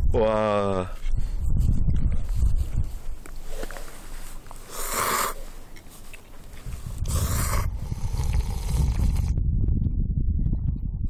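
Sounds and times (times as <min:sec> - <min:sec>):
person slurping noodles: 0:04.6 - 0:05.4, 0:06.9 - 0:09.4
low rumble: 0:06.6 - 0:11.0.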